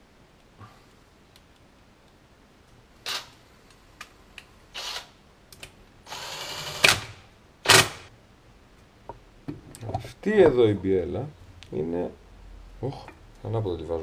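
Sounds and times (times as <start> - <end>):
cordless drill running: 4.8 - 5.1, 6.1 - 6.9.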